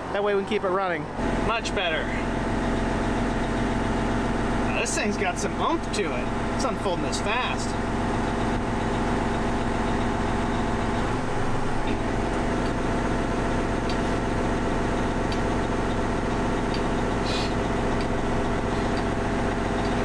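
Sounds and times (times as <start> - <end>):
tractor diesel engine running: 0.0 - 20.0
hydraulic hiss: 17.2 - 17.6.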